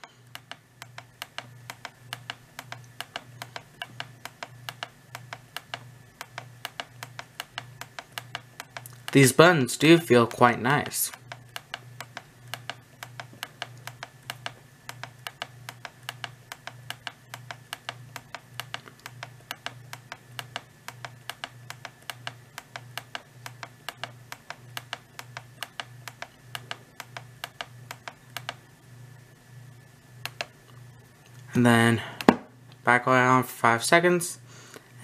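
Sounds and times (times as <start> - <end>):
radio push buttons clicking: 0.0 - 9.3, 10.8 - 28.6, 30.2 - 30.6.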